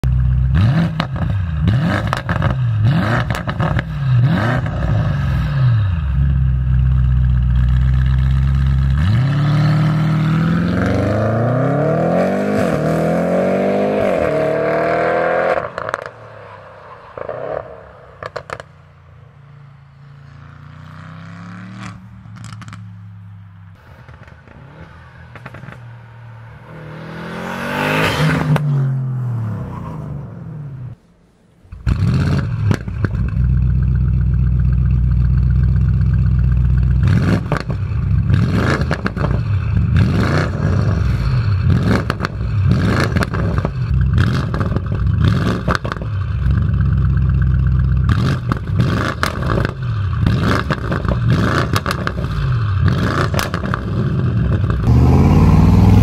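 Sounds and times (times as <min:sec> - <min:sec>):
car engine revving: 0:00.2 - 0:31.1, 0:31.7 - 0:56.0
car accelerating through upshifts: 0:09.0 - 0:16.2, 0:23.8 - 0:31.0, 0:48.1 - 0:56.0
exhaust cracks: 0:17.0 - 0:19.0, 0:21.8 - 0:23.0, 0:23.8 - 0:26.2, 0:31.6 - 0:56.0.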